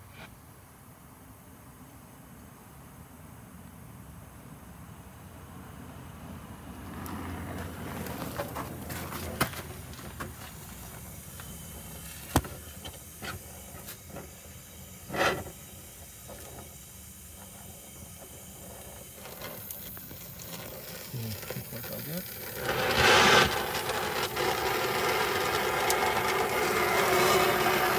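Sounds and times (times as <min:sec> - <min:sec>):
torch hissing: 0:06.8 - 0:27.9
short louder gas rush: 0:10.5 - 0:27.9.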